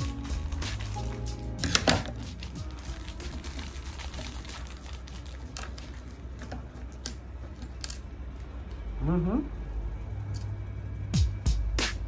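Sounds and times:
plastic bags crinkling: 0.0 - 7.1.

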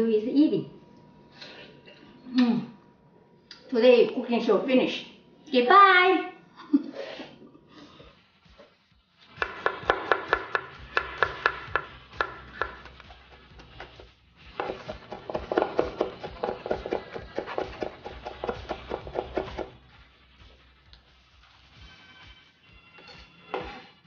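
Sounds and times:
knife chopping on wooden board: 9.4 - 14.0, 14.6 - 19.8.

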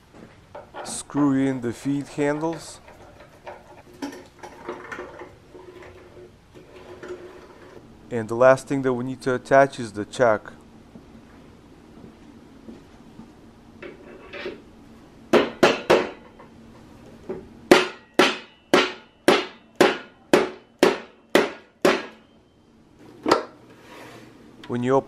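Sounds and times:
rubber mallet striking metal: 17.7 - 22.3.

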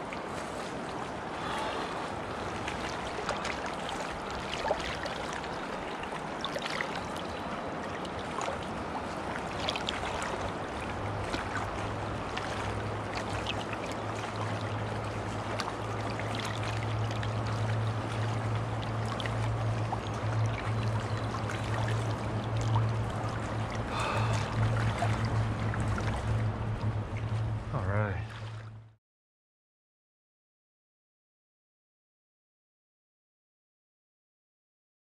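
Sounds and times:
water splashes and drips: 0.0 - 29.0
river current rushing: 0.1 - 28.7
steady low hum: 7.1 - 29.0.

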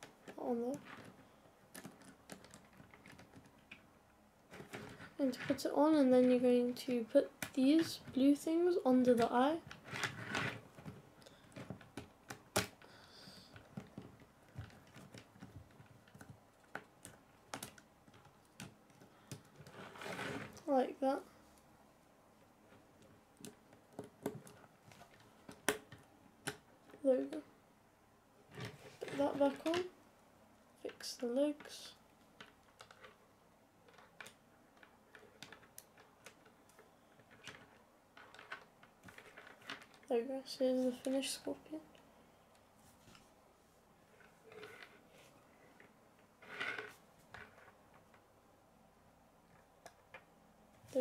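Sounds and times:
plastic pieces clicking and snapping: 0.0 - 3.8, 13.5 - 19.8, 33.9 - 40.1.

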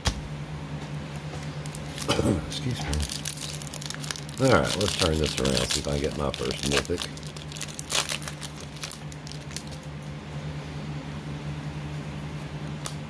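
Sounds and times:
steady low hum: 0.0 - 13.0
cards rustling and clicking: 1.4 - 9.8.

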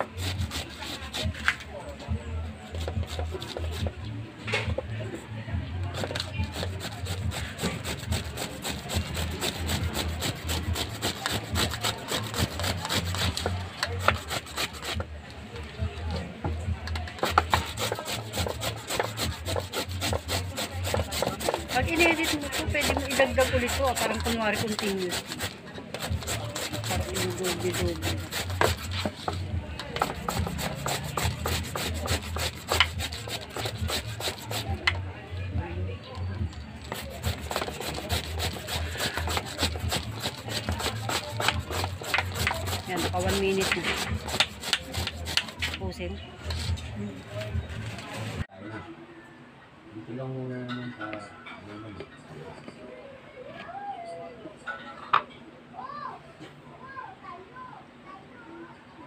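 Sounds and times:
papaya grated on metal grater: 0.0 - 1.4, 5.9 - 15.1, 17.2 - 34.8, 36.8 - 45.8.

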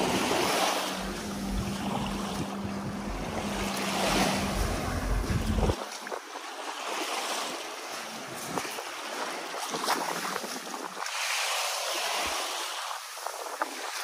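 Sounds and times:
wind buffeting microphone: 0.0 - 7.1, 7.8 - 11.3
small waves washing on shore: 0.0 - 14.0.

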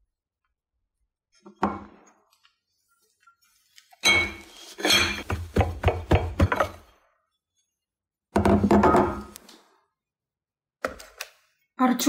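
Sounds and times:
mug clinking on ceramic plate: 4.0 - 5.2.

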